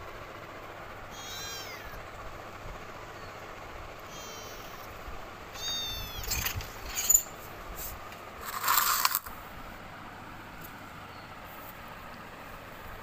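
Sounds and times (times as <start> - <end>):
kittens mewing: 1.0 - 2.1, 4.0 - 6.6.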